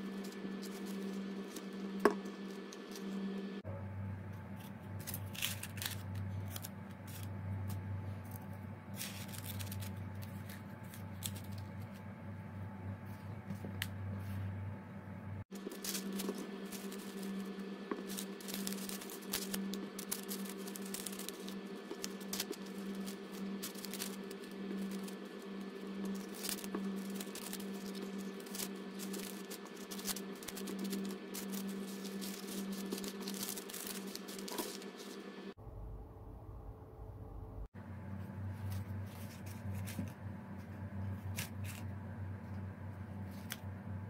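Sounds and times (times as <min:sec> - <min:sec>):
paper and foil crinkling: 0:00.0 - 0:03.1, 0:04.9 - 0:07.3, 0:08.2 - 0:12.0, 0:15.5 - 0:35.3
steady low hum: 0:00.0 - 0:44.0.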